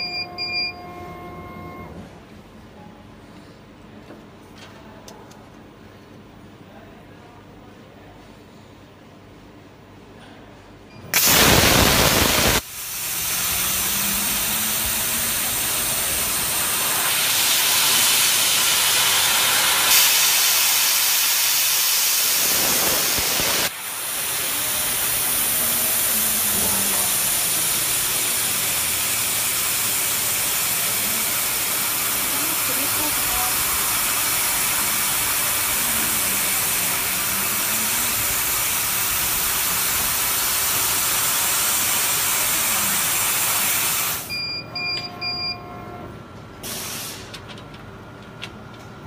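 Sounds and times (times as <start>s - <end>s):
air assist hissing: 11.1s - 44.3s, 46.6s - 47.5s.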